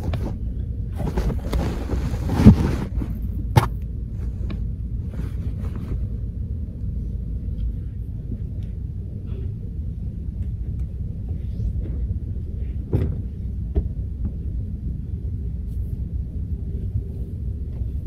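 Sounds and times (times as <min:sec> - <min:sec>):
rustling and scraping: 0:00.0 - 0:06.2
steady low rumble: 0:00.0 - 0:18.0.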